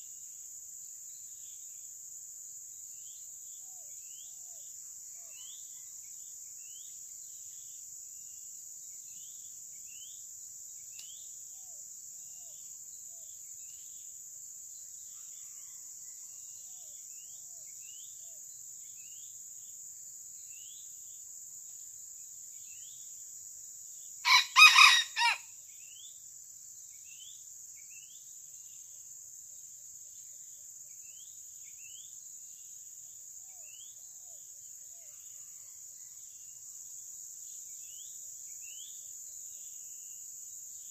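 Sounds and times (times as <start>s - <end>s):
crickets droning: 0.0s - 40.9s
rooster crowing: 24.2s - 25.5s.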